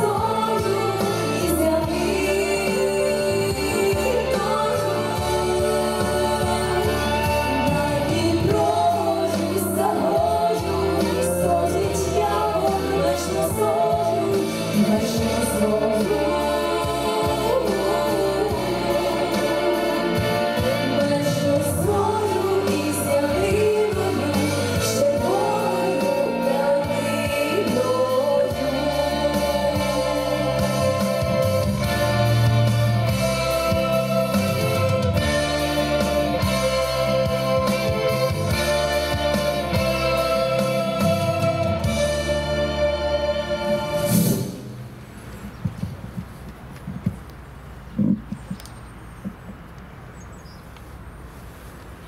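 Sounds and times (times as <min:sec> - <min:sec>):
song with instrumental accompaniment: 0:00.0 - 0:44.9.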